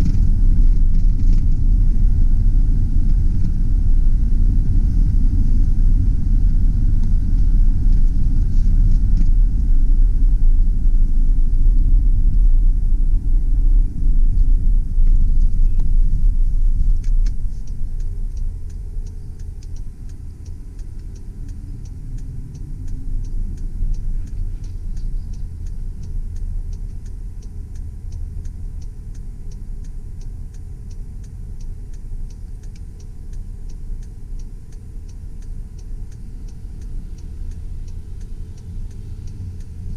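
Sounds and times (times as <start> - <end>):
truck engine and road rumble: 0.0 - 39.9
turn signal clicking: 0.0 - 39.9.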